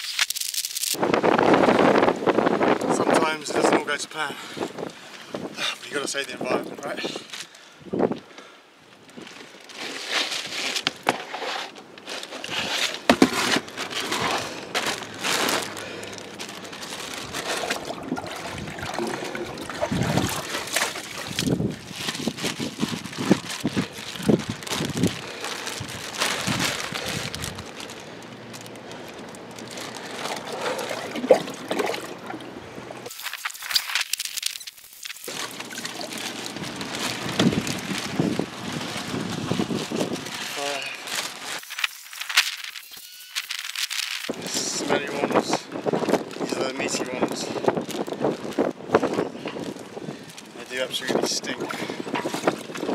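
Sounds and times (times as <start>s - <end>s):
plastic bag crinkling: 0.0s - 1.0s, 9.0s - 52.9s
water splashing and trickling: 13.7s - 41.4s.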